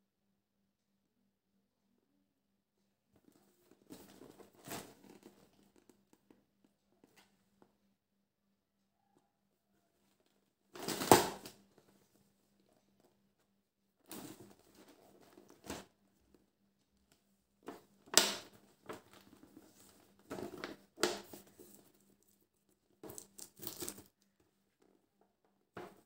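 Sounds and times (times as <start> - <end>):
snack packaging crinkling and tearing: 23.1 - 24.1.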